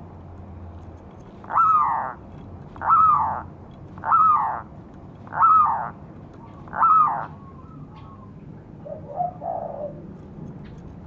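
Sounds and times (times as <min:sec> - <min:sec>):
dove cooing: 0:01.4 - 0:02.2, 0:02.8 - 0:10.1.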